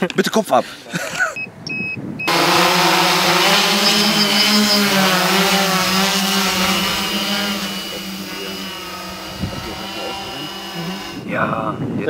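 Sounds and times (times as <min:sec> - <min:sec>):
drone propellers buzzing: 0:02.3 - 0:11.3.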